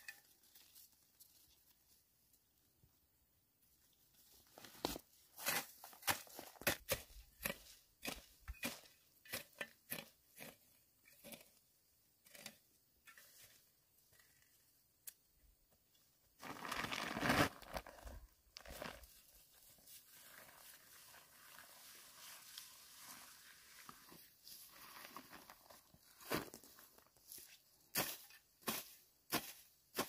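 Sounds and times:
rustling and crinkling: 0:03.8 - 0:08.8, 0:16.4 - 0:27.6
hoe chopping into dry soil: 0:05.4 - 0:11.5, 0:27.9 - 0:30.0.

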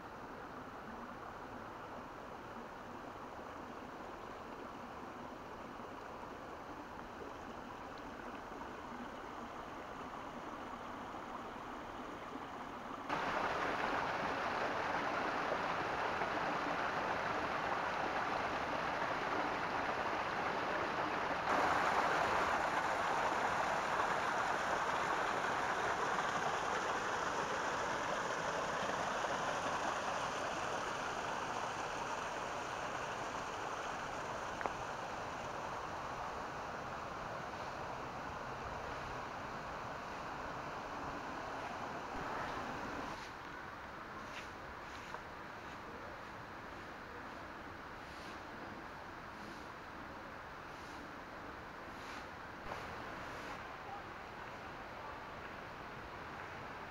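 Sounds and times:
stream water rushing over rocks: 0:00.1 - 0:45.5.

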